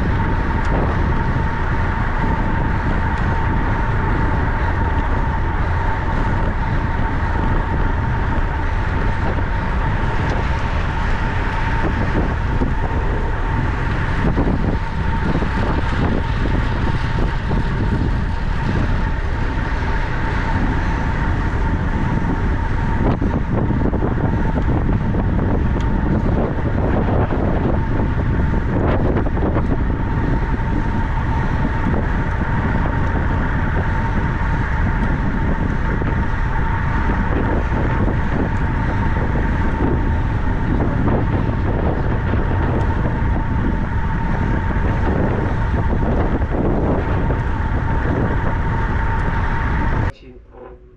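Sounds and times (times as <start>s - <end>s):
wind rushing on microphone: 0.0s - 50.9s
thin high tone: 50.1s - 50.9s.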